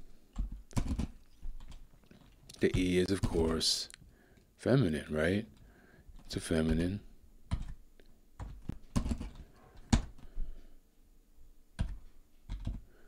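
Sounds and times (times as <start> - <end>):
typing on computer keyboard: 0.4 - 1.8, 7.5 - 7.8, 8.4 - 10.2, 11.8 - 12.9.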